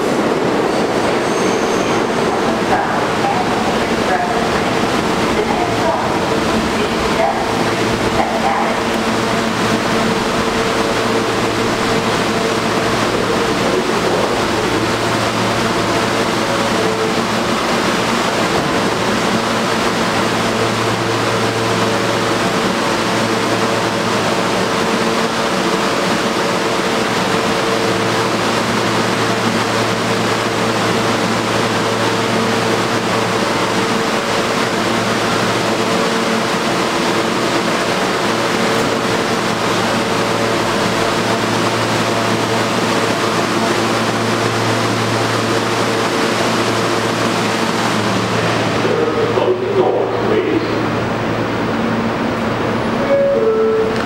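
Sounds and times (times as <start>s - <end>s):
electrical hum and tone: 48.8s - 54.0s.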